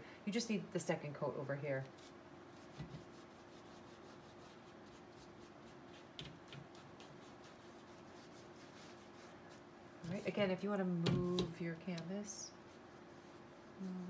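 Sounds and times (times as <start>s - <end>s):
faint steady hum: 0.0s - 14.0s
paintbrush scratching on canvas: 1.9s - 10.4s, 12.3s - 14.0s.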